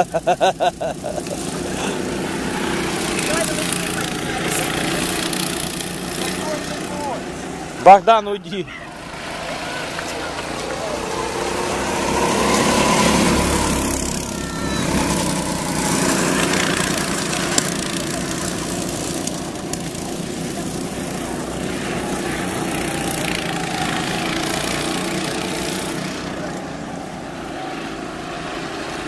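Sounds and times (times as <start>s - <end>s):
go-kart engines buzzing: 0.0s - 29.0s.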